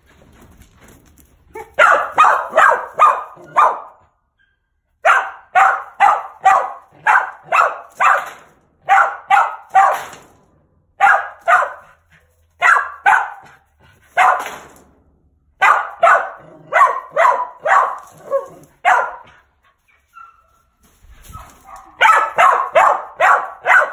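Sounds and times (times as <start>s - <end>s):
dog barking sharply: 1.6s - 4.0s, 5.0s - 10.2s, 11.0s - 12.0s, 12.6s - 13.6s, 14.2s - 14.6s, 15.6s - 19.4s, 21.4s - 23.9s.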